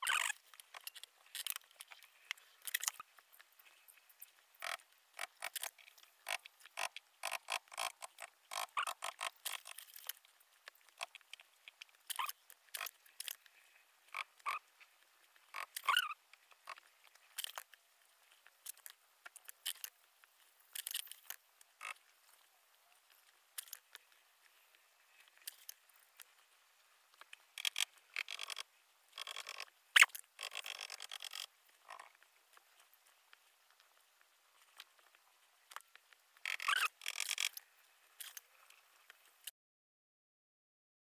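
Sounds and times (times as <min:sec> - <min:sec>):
pen squeak: 0:00.0 - 0:00.4, 0:15.6 - 0:16.2, 0:29.2 - 0:31.4, 0:36.5 - 0:37.5.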